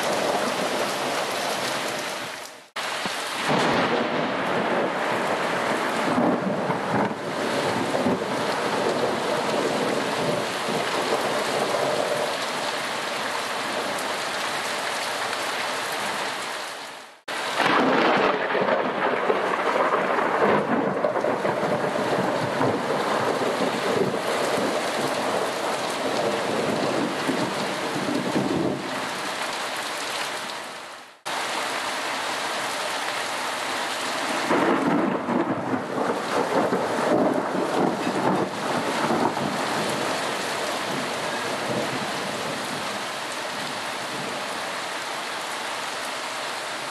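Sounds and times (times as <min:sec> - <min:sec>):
rain falling: 0:00.0 - 0:46.9
thunder: 0:03.4 - 0:12.2, 0:17.6 - 0:28.8, 0:34.4 - 0:40.2.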